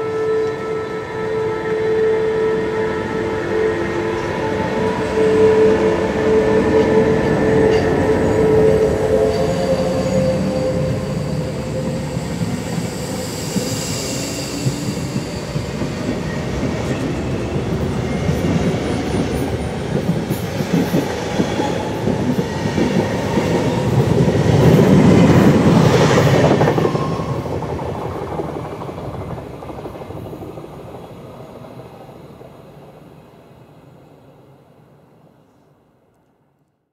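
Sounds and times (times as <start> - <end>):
electric locomotive tones: 0.0 - 28.1
train wheels rolling on rails: 4.1 - 32.8.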